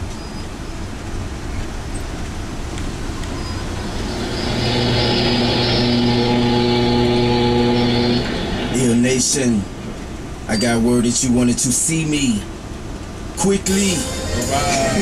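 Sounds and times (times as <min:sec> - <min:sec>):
bus engine and road rumble: 0:00.0 - 0:15.0
steady held tones: 0:03.1 - 0:11.0, 0:13.4 - 0:15.0.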